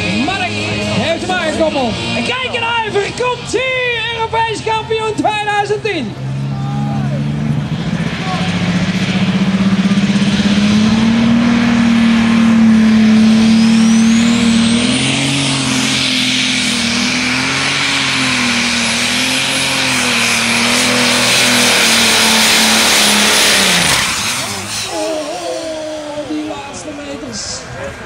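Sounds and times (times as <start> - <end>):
tractor engine at full power: 0.0 - 28.0
high mechanical whine: 7.6 - 28.0.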